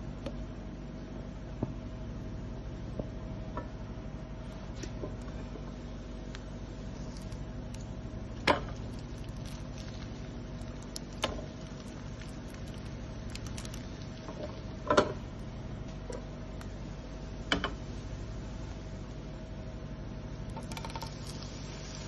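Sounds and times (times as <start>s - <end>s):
bread sizzling in a pan: 6.6s - 14.8s, 20.9s - 22.0s.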